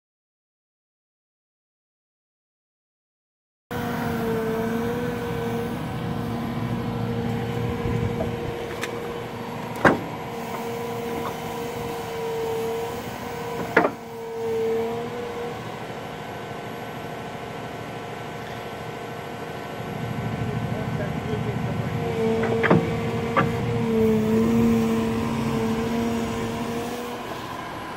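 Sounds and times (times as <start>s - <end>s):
diesel engine running: 3.7s - 27.9s
wavering hydraulic whine: 3.7s - 27.9s
sharp metallic clunks: 22.4s - 23.6s.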